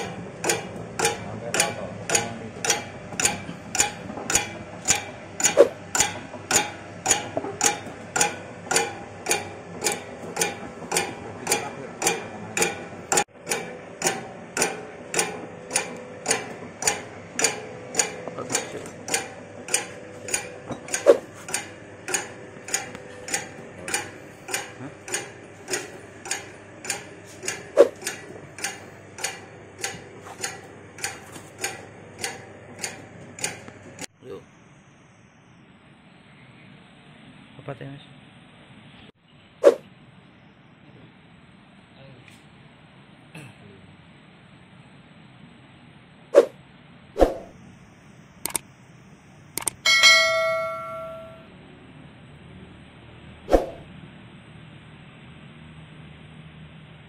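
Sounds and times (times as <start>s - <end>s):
rotating cutter clicking: 0.0s - 34.1s, 48.4s - 48.6s, 49.6s - 49.8s.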